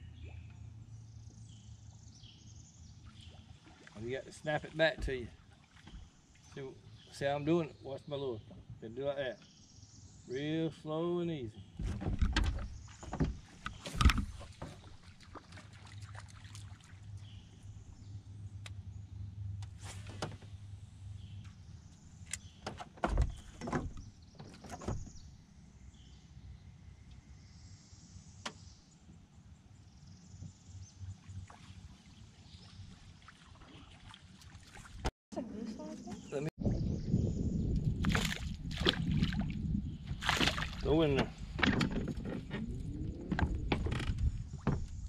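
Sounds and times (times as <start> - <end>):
knocks and clicks in boat: 4.7 - 6.1, 11.6 - 16.4, 21.3 - 25.2, 40.1 - 45.0.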